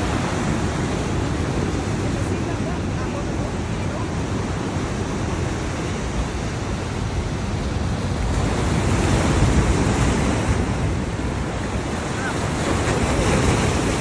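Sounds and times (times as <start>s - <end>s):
surf breaking on rocks: 0.0s - 14.0s.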